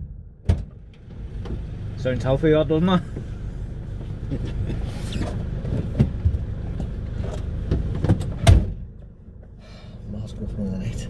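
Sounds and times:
van engine idling: 0.0 - 11.0
clothing and seat rustling: 3.2 - 8.4.

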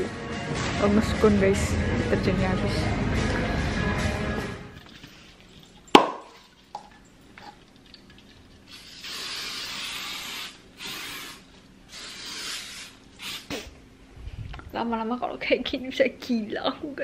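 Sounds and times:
disinfectant spray hissing: 8.7 - 13.7.

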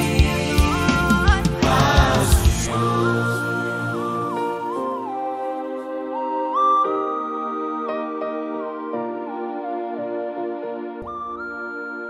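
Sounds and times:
instrumental music with held chords: 0.0 - 12.0
melody gliding down in pitch: 3.0 - 12.0.

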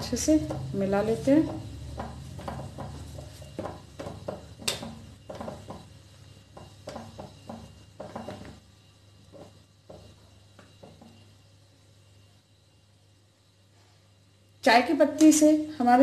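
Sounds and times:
spatula scraping metal pot: 0.0 - 11.3.

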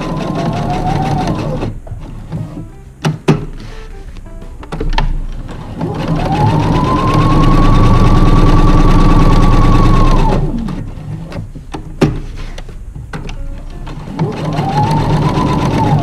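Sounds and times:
sewing machine stitching: 0.0 - 2.6, 5.4 - 12.2, 13.6 - 16.0.

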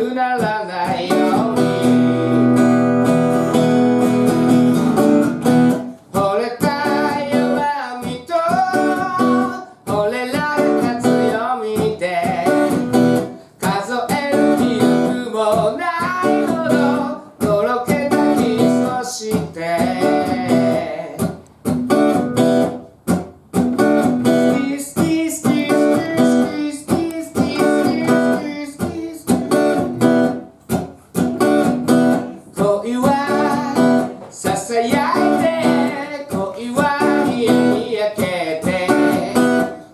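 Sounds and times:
person singing: 0.0 - 2.5, 6.1 - 21.3, 24.5 - 30.2, 32.0 - 39.9
acoustic guitar strumming: 0.0 - 39.9.

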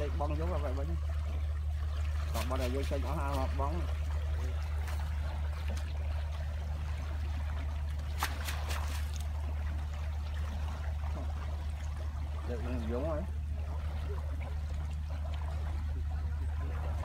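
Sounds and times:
steady low hum: 0.0 - 17.0
water splashes: 0.0 - 17.0
water swishing and trickling: 0.0 - 17.0.

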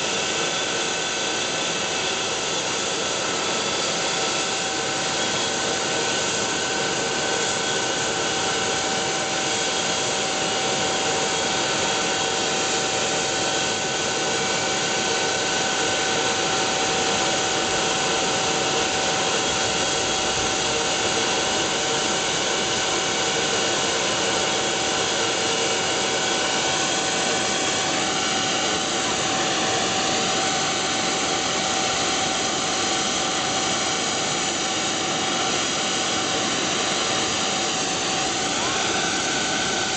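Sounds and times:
helicopter turbine engines whining: 0.0 - 39.9
broad rushing noise: 24.8 - 39.9.

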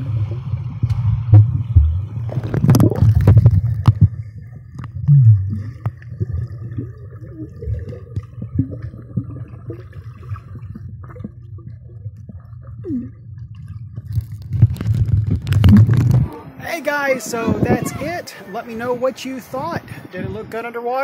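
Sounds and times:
muffled underwater rumble: 0.0 - 16.6
water gurgling: 0.0 - 20.3
underwater clicks and knocks: 0.8 - 6.4, 7.7 - 9.8, 13.4 - 16.4.

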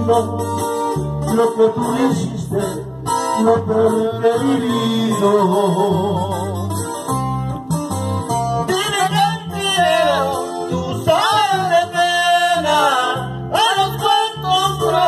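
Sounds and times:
plucked guitar and bass: 0.0 - 15.0.

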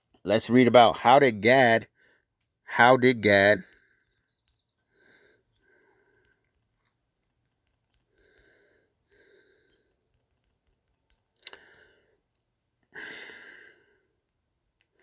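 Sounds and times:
man breathing: 3.7 - 6.9, 8.0 - 10.2, 11.4 - 14.2.

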